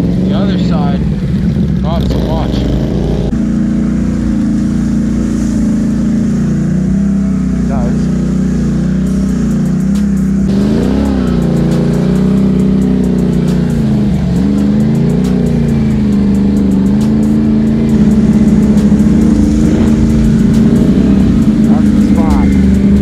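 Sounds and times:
quad bike engine revving: 0.0 - 23.0.

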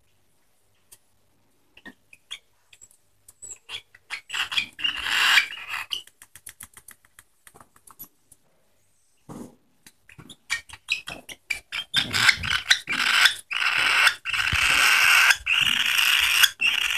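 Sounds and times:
budgerigar begging calls: 3.7 - 6.0, 10.9 - 16.9
beak clicks and smacking: 5.9 - 8.4.

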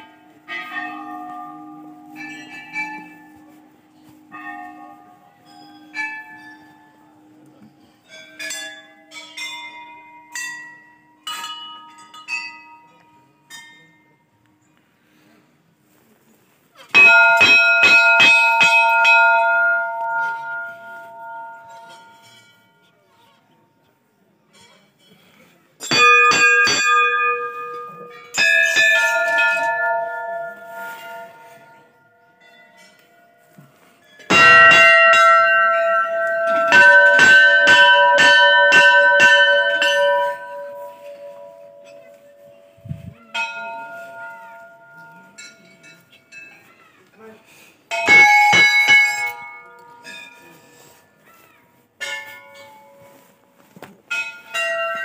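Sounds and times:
brass bell struck and ringing: 17.0 - 22.5, 25.8 - 31.9, 34.3 - 46.4, 47.9 - 50.8.

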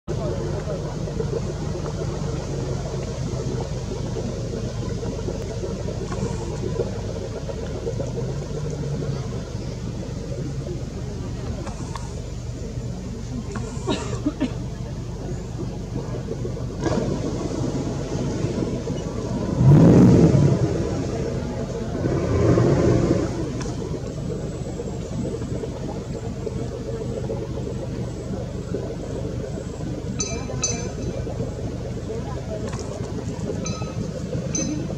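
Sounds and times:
boat engine idling: 0.0 - 34.9.

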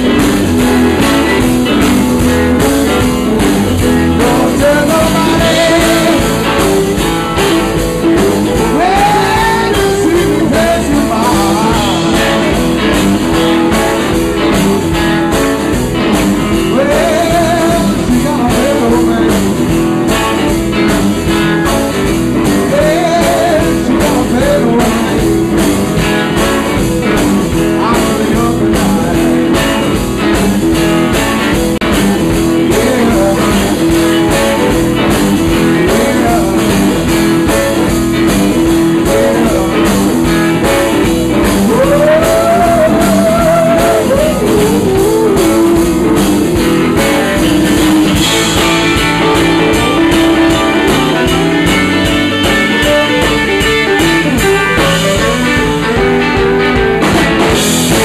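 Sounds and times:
live blues band playing: 0.0 - 58.0
man singing: 3.2 - 13.0, 16.1 - 20.9, 21.9 - 30.7, 31.8 - 52.0.

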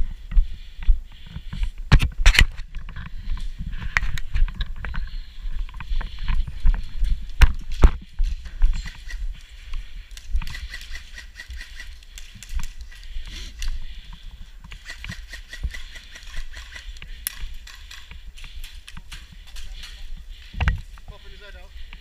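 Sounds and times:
footsteps in grass: 0.0 - 22.0
sharp clicks: 8.8 - 13.8, 14.7 - 20.8
rapid high ticks: 8.8 - 20.8.

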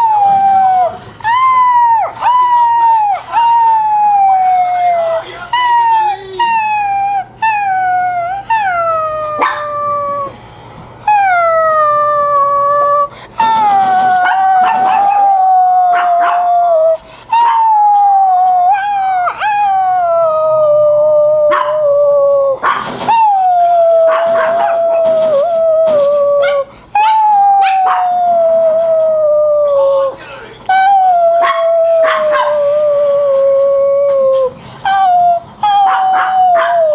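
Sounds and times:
dog howling: 0.0 - 10.4, 11.0 - 36.9
dog yipping: 5.6 - 10.3, 13.4 - 19.9, 21.5 - 22.0, 22.6 - 23.4, 24.0 - 28.4, 31.4 - 33.4, 34.1 - 36.9.

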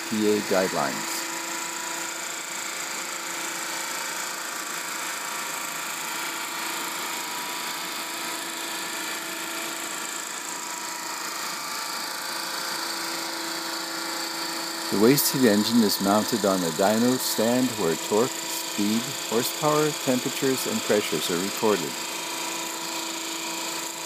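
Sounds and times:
steam engine whirring: 14.7 - 22.2.

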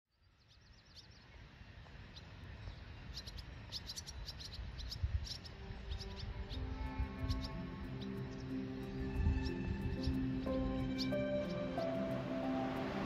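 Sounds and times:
small songbirds chirping: 0.1 - 13.0.

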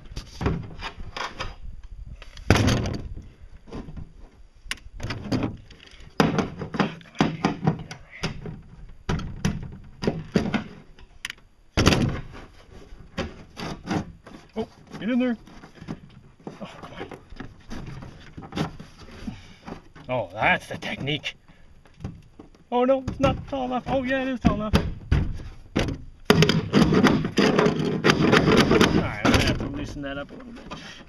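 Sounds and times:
fiberglass cover knocking and clattering: 6.2 - 10.9, 22.0 - 30.0.

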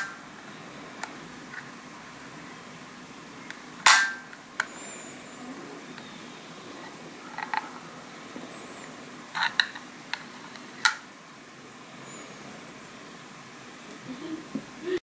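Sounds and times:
steady low hiss: 0.0 - 15.0.

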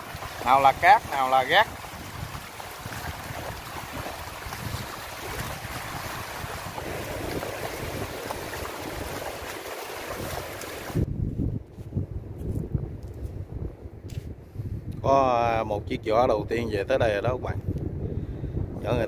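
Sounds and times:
small waves breaking on shore: 0.0 - 11.1
wind buffeting microphone: 0.0 - 19.0.

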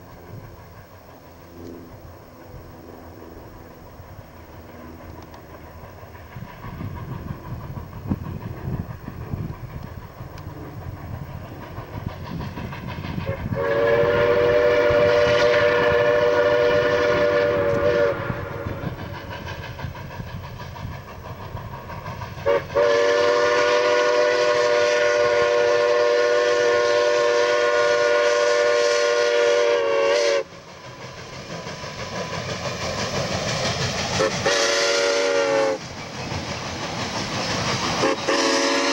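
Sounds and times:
steam locomotive running rumble: 0.0 - 38.9
steam whistle blasts: 13.2 - 19.1, 22.4 - 30.6, 34.2 - 35.8, 38.0 - 38.9.

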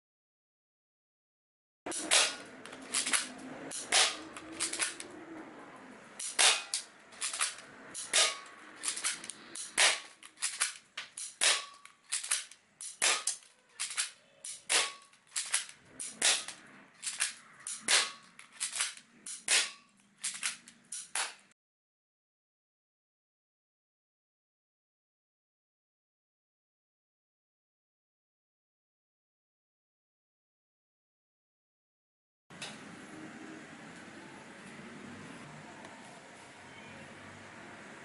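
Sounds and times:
airsoft gun shots: 1.9 - 5.0, 6.2 - 16.6, 17.7 - 18.2, 19.5 - 19.8.

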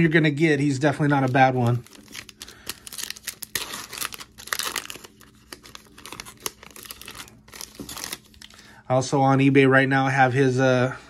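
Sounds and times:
plastic wrapper crinkling: 0.6 - 8.8
cards being handled: 1.0 - 8.5.

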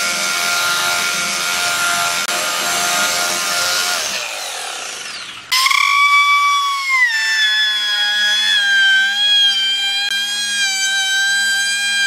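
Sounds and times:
belt sander sanding wood: 0.0 - 12.0
motor whine: 3.0 - 10.4.

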